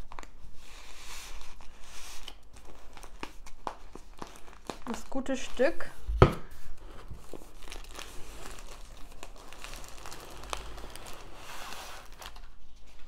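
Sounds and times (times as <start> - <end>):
plastic wrapping crinkling: 0.0 - 13.0.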